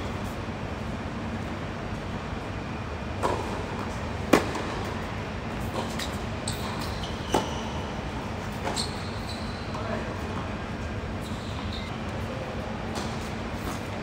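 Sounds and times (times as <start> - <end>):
tennis ball impacts: 3.2 - 4.8
shoe squeaks on court: 6.0 - 9.9, 11.2 - 12.0.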